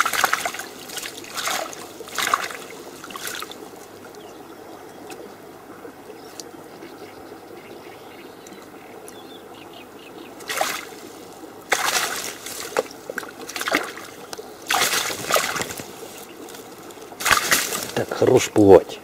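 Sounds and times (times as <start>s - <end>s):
water splashing and sloshing: 0.0s - 7.3s, 10.3s - 19.0s.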